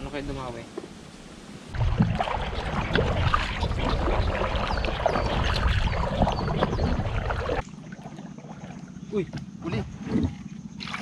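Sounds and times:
paddle splashing through water: 1.8 - 9.4.

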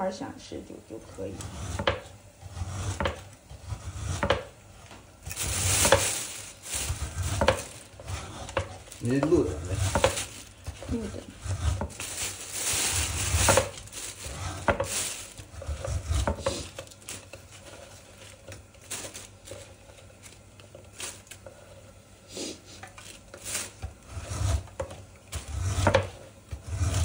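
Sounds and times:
meat slicer scraping and knocking: 1.2 - 21.9, 22.8 - 27.0.

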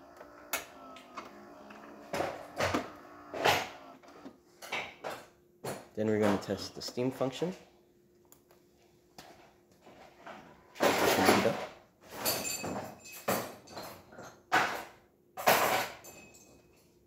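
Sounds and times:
espresso machine humming: 0.0 - 4.4.

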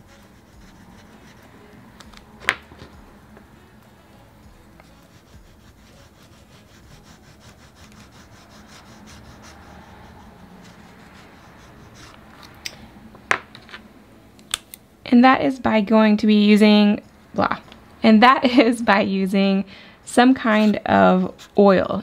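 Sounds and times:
pastel rubbing on paper: 0.0 - 1.5, 4.8 - 12.3.

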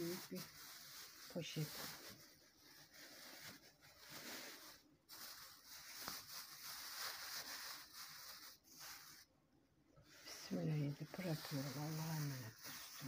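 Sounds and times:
plastic bag rustling: 0.0 - 9.3.

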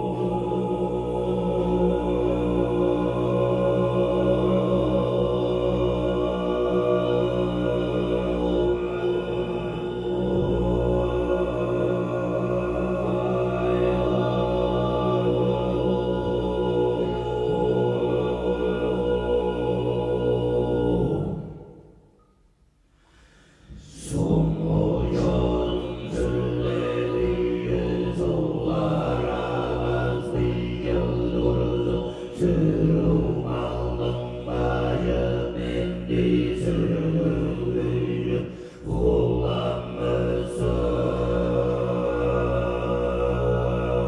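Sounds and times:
men throat singing: 23.1 - 44.0
low drone: 23.7 - 44.0.

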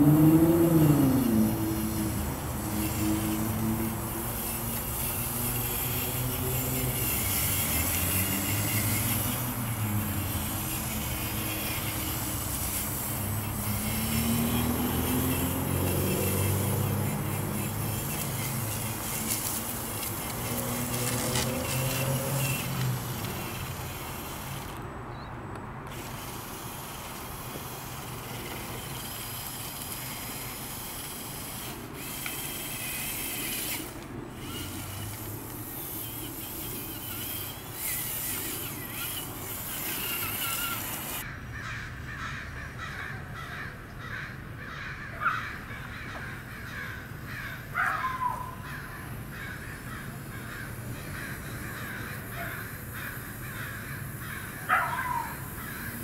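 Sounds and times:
crows cawing: 41.2 - 56.0.

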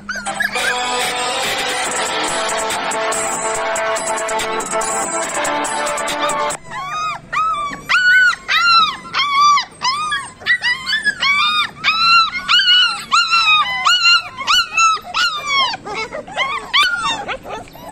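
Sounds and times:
puppies whining and yelping: 0.0 - 2.2, 6.5 - 17.9.

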